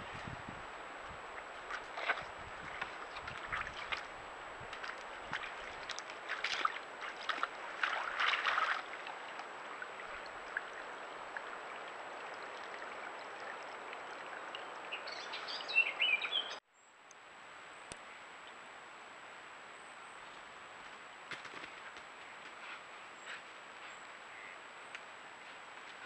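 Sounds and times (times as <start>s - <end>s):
deer sloshing in muddy water: 0.8s - 15.6s
bird chirping: 14.5s - 16.9s.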